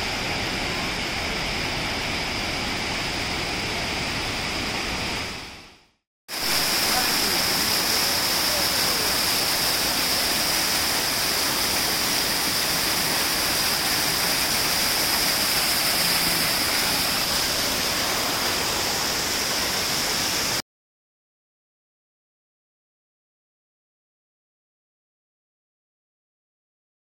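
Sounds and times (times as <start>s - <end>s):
waterfall rushing over rocks: 0.0s - 20.6s.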